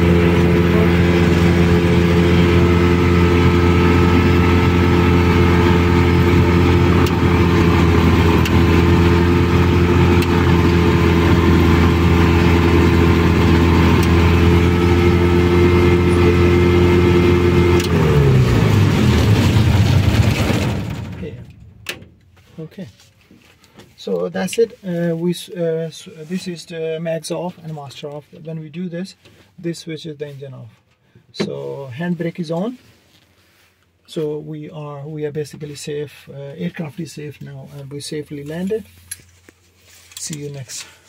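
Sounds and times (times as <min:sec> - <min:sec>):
aircraft engine idling: 0:00.0 - 0:21.9.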